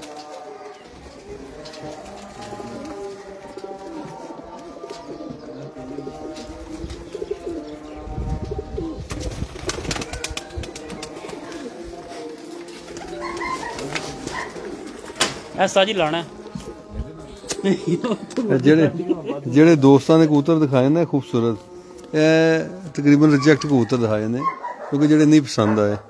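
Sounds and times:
pigeons cooing: 0.0 - 19.0.

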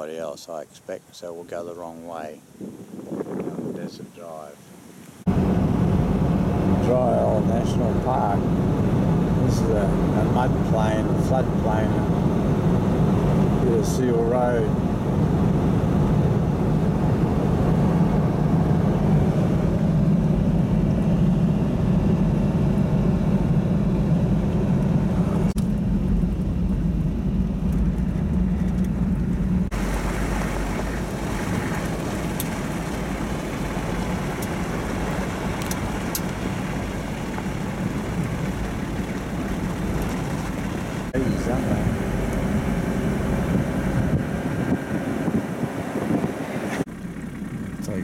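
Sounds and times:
engine and tyre drone: 5.3 - 48.0
road hiss: 29.7 - 42.6.

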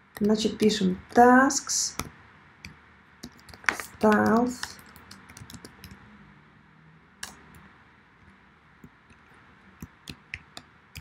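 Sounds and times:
computer keyboard keystrokes: 2.0 - 6.0, 9.8 - 11.0.

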